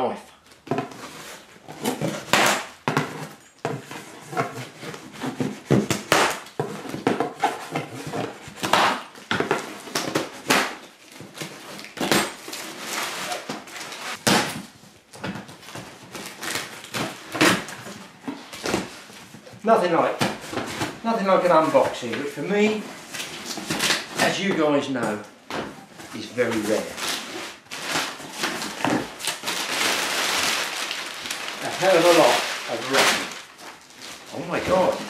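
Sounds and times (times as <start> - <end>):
cardboard rustling and knocking: 0.6 - 12.8, 20.2 - 35.0.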